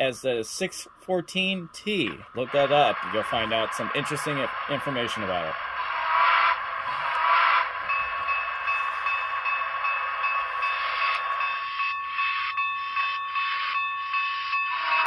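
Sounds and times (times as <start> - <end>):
model steam locomotive chuffs: 0.0 - 15.0
high ringing tone: 6.5 - 15.0.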